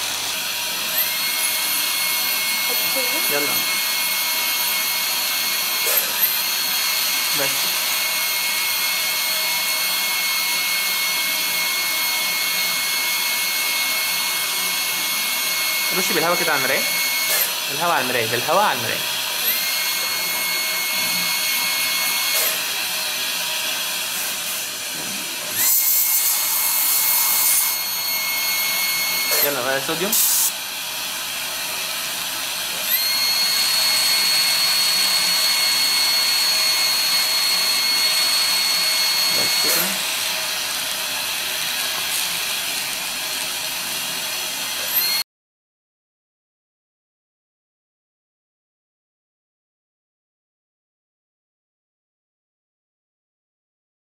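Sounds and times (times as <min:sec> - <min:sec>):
dental equipment hiss and whine: 0:14.9 - 0:22.8, 0:23.6 - 0:30.7, 0:32.7 - 0:42.9.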